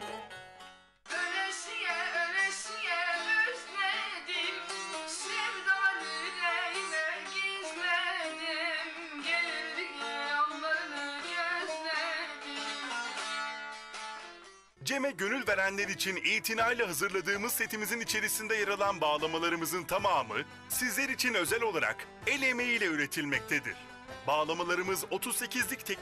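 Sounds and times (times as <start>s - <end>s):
boy singing in a high voice: 1.1s - 12.6s.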